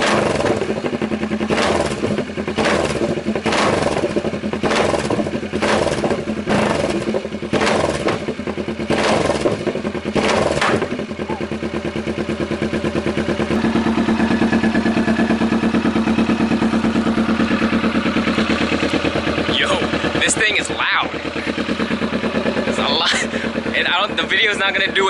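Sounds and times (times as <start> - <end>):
exhaust pops: 0.0 - 11.4
motorcycle engine revving and idling: 0.0 - 25.0.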